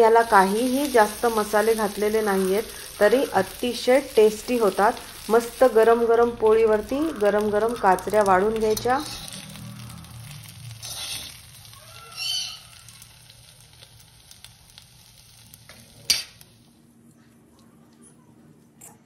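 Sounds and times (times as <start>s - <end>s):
eggplant sizzling in pan: 0.0s - 16.8s
steel spatula scraping: 8.8s - 9.6s, 10.2s - 11.6s.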